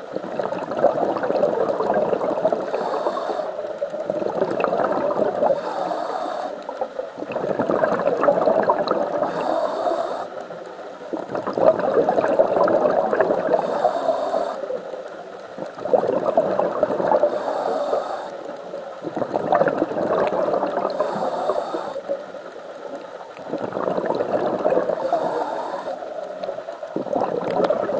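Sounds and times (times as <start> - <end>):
bubbling exhaled air: 0.0 - 27.9
diver breathing through regulator: 2.2 - 4.1, 5.0 - 7.0, 9.0 - 10.8, 13.2 - 15.0, 16.9 - 18.7, 20.3 - 22.4, 24.0 - 27.9.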